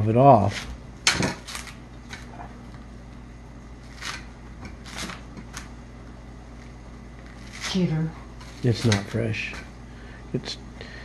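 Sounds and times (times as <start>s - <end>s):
coconut husk tearing: 0.4s - 2.4s, 3.8s - 5.8s, 7.2s - 9.6s.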